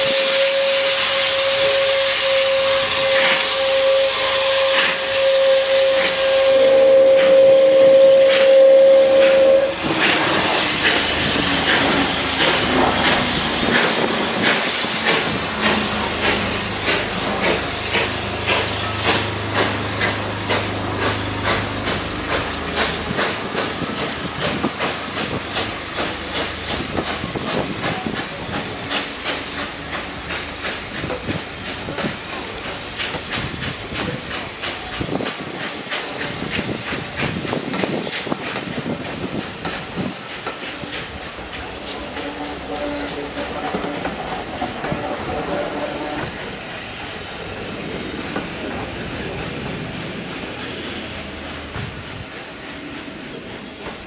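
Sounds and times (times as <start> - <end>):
steam locomotive whistle: 0.0 - 29.7, 41.8 - 47.0
hiss of escaping steam: 0.0 - 54.0
locomotive exhaust beats: 0.1 - 50.5.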